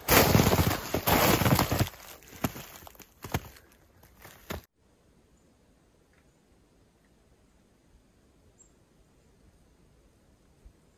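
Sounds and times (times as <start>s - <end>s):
footsteps crunching through snow: 0.0s - 4.7s.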